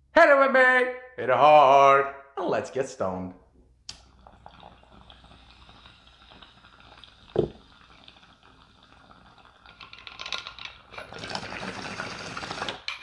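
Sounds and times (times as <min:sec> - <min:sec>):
bong water bubbling: 0:04.1 - 0:09.7.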